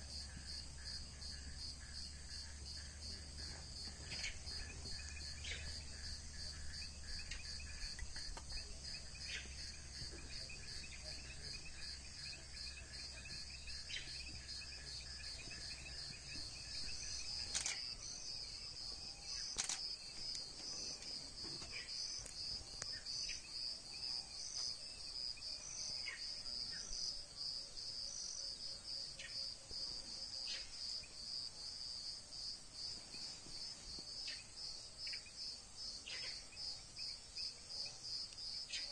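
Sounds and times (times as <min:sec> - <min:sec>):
crickets chirping: 0:00.0 - 0:38.9
sharp clicks: 0:19.5 - 0:20.4.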